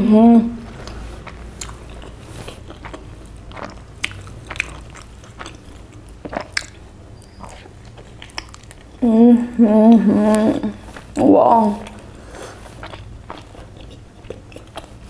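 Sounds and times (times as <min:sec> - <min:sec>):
closed-mouth hum: 0:00.0 - 0:15.0
chewing with wet mouth clicks: 0:00.8 - 0:09.0, 0:11.8 - 0:15.0.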